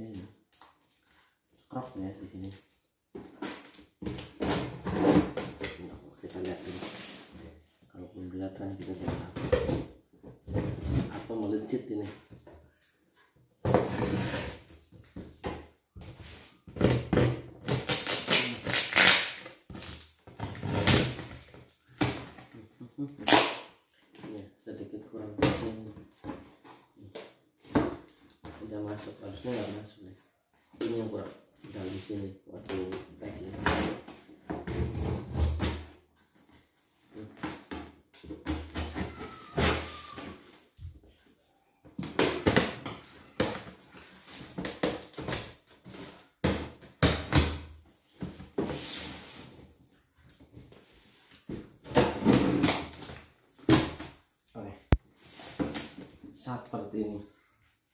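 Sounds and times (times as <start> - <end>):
knife slitting tape and cardboard: 17.6 - 21.2.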